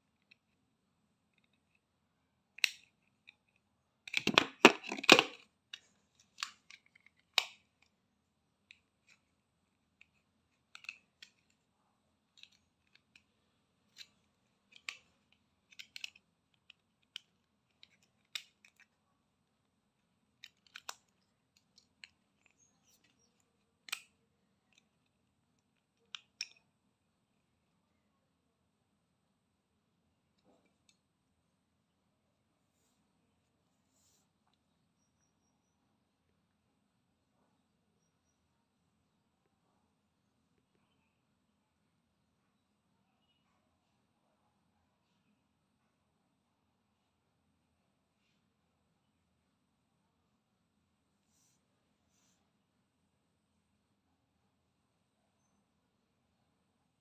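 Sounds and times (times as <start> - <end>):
plastic clicking and scraping: 2.6 - 8.0, 8.7 - 11.6, 12.3 - 19.0, 20.4 - 26.6.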